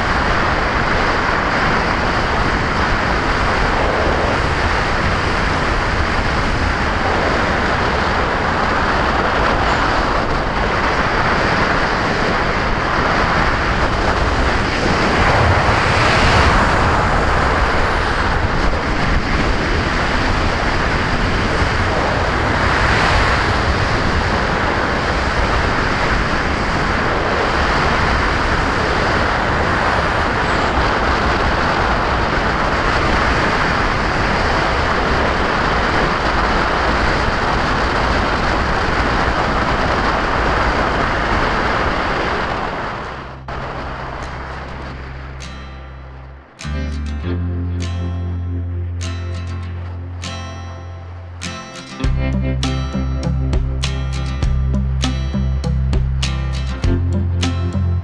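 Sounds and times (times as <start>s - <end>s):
wind noise on camera: 0.0s - 46.4s.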